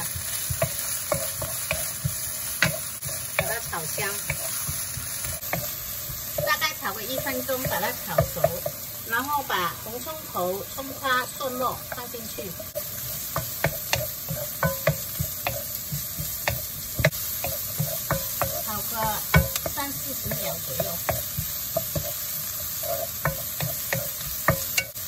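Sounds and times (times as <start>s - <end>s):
spatula knocking and scraping pan: 0.0s - 8.9s, 10.8s - 25.0s
vegetables sizzling in oil: 0.0s - 25.0s.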